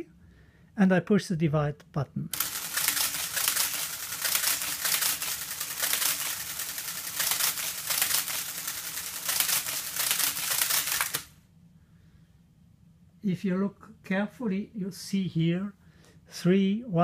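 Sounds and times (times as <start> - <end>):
mechanical calculator clatter: 2.4 - 11.3
motor hum: 2.4 - 11.4.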